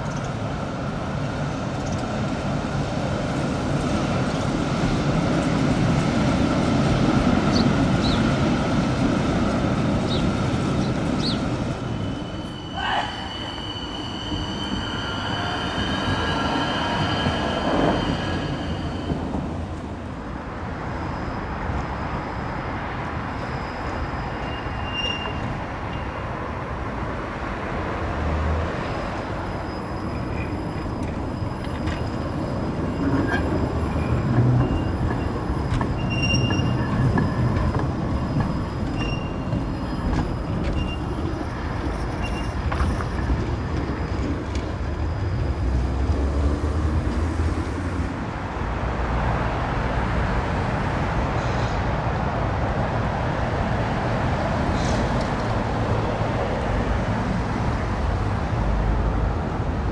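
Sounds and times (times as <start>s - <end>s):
tram wheels rumbling on track: 0.0s - 59.9s
high wheel squeals: 10.8s - 19.7s, 20.8s - 26.2s, 28.8s - 46.2s.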